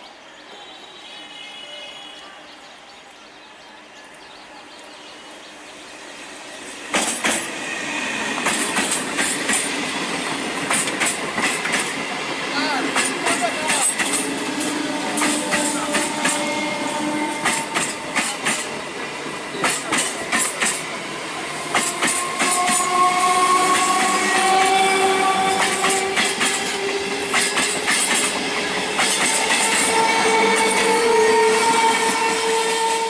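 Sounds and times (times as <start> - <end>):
train wheels clattering over rail joints: 6.9 - 7.5, 8.4 - 16.5, 17.4 - 18.8, 19.5 - 20.9, 21.6 - 23.1, 25.4 - 31.0.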